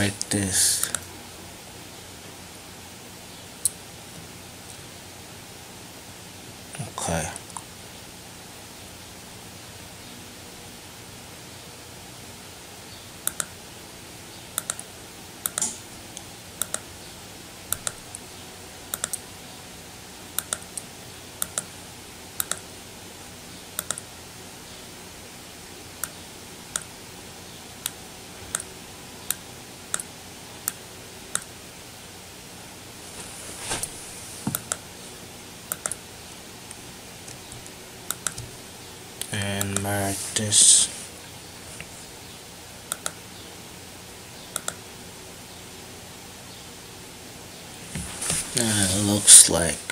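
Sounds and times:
steady hiss: 0:00.0 - 0:01.4, 0:32.8 - 0:43.0, 0:47.7 - 0:49.9
computer mouse clicking: 0:13.2 - 0:13.6, 0:14.6 - 0:15.8, 0:16.6 - 0:16.8, 0:17.7 - 0:18.0, 0:18.9 - 0:19.2, 0:20.4 - 0:21.7, 0:22.4 - 0:22.6, 0:23.8 - 0:24.1, 0:29.3 - 0:31.5, 0:34.5 - 0:34.8, 0:35.7 - 0:36.0, 0:37.3 - 0:38.5, 0:42.9 - 0:43.2, 0:44.5 - 0:44.8
rustling: 0:33.0 - 0:34.5, 0:47.8 - 0:49.0.

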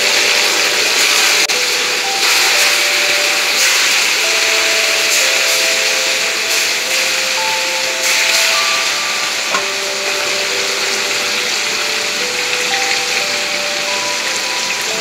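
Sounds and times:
fish deep-frying in oil: 0:00.0 - 0:15.0
soft background music: 0:00.0 - 0:15.0.

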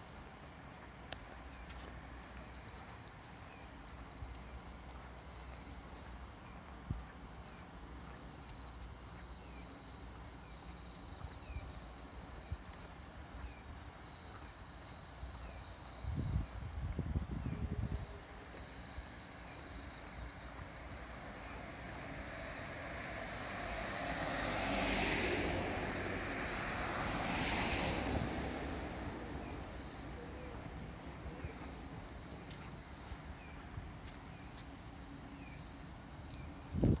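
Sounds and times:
insects chirping: 0:00.0 - 0:37.0.

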